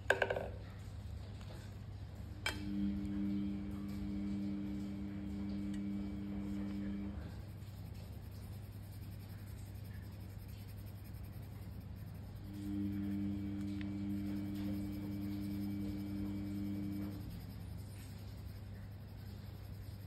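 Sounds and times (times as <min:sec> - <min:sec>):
steady low hum: 0:00.6 - 0:20.0
pencil scratching on paper: 0:06.0 - 0:20.0.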